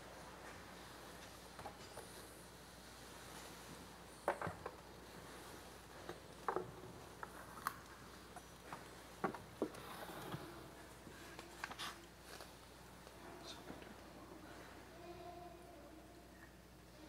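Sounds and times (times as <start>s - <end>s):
faint knocks and taps: 8.3s - 10.5s.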